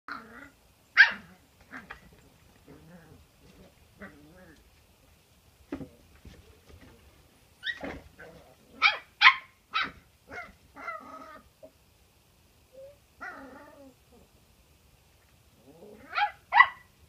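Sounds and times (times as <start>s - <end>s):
puppy yelp: 1.0s - 1.3s, 8.8s - 11.4s, 16.0s - 16.9s.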